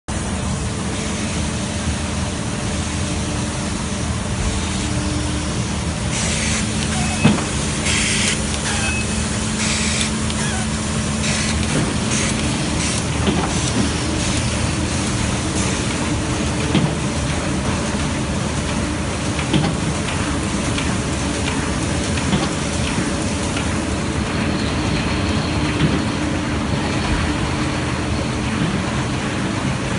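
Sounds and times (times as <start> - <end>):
printing press running: 0.1 - 29.9.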